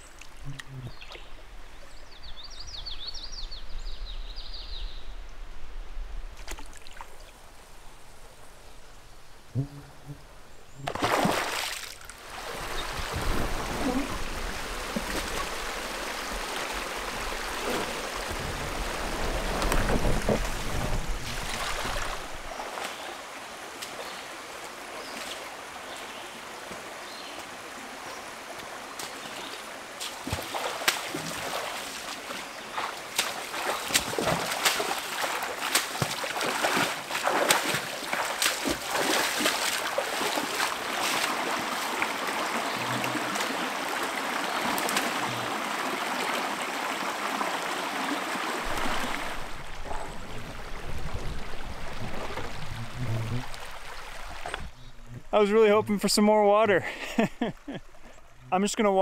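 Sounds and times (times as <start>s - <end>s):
river water flowing: 0.0s - 3.7s, 5.1s - 59.0s
paddle splashes and knocks: 6.4s - 7.2s, 10.8s - 23.1s, 28.6s - 46.6s, 47.9s - 55.3s.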